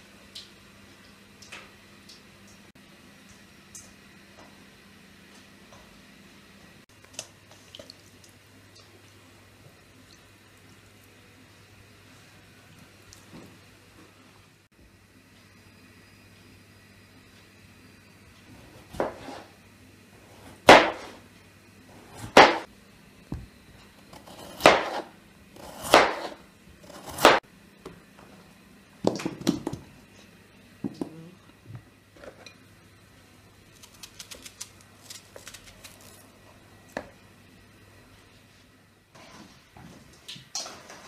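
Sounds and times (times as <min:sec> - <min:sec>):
knife slicing potatoes on board: 0:18.6 - 0:19.6, 0:20.3 - 0:21.2, 0:22.0 - 0:22.7, 0:24.1 - 0:27.4.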